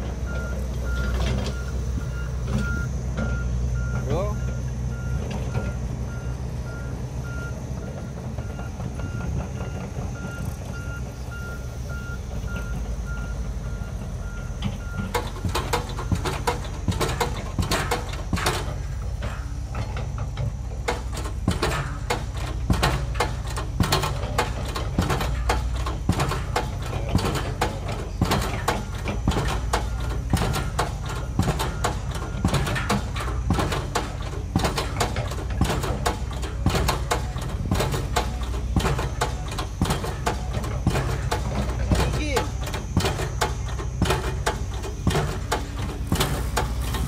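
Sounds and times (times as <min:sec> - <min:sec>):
construction machinery engine hum: 0:00.0 - 0:47.0
sharp clicks and knocks: 0:14.5 - 0:47.0.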